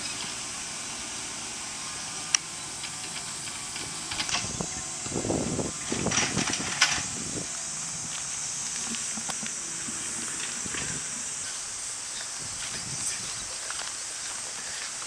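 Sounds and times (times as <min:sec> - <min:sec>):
steady high hiss: 0:00.0 - 0:15.0
footsteps on gravel and leaves: 0:03.6 - 0:15.0.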